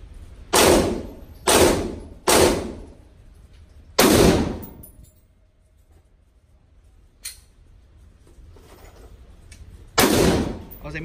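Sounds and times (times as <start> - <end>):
rifle shots ringing indoors: 0.2 - 5.8, 9.7 - 10.9.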